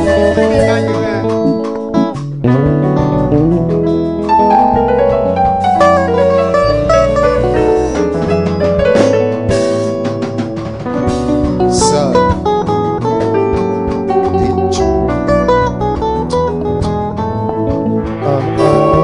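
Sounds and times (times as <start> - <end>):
plucked string music with bass: 0.0 - 19.0.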